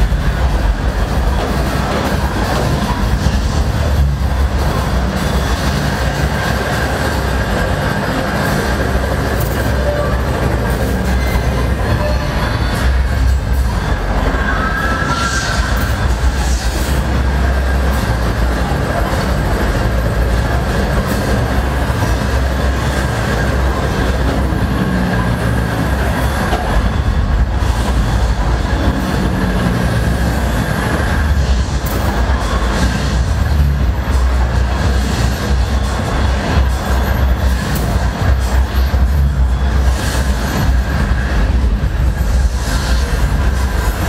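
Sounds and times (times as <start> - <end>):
roller coaster cars rumbling on track: 0.0 - 44.0
high squeal of wheels: 9.2 - 13.1, 13.8 - 16.9.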